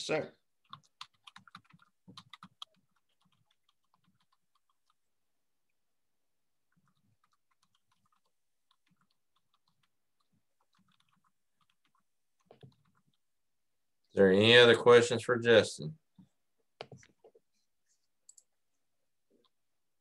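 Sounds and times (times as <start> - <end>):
faint keyboard typing: 0.6 - 5.1, 6.6 - 13.3, 16.1 - 19.7.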